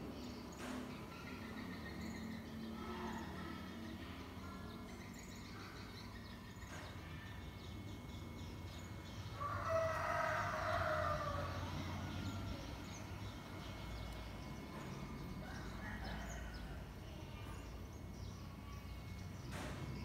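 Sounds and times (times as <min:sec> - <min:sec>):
rooster crowing: 0:09.4 - 0:12.0.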